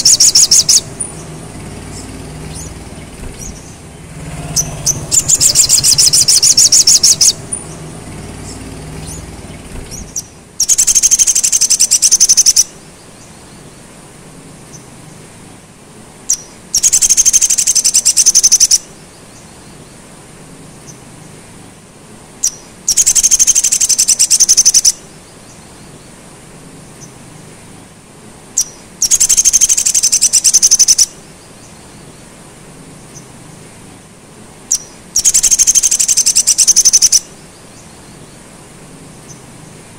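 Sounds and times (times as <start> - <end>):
high-pitched bird trill: 0.0 - 12.7, 28.6 - 31.1, 34.7 - 37.3.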